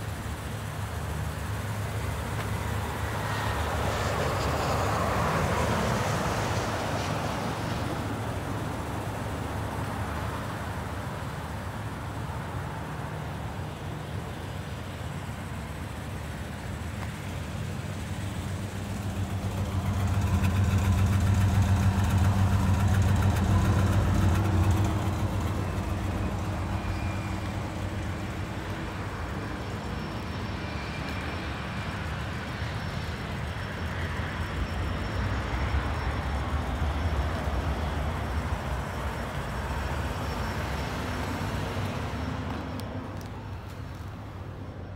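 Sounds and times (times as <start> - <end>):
car engine idling: 0.0 - 3.7, 13.2 - 30.3.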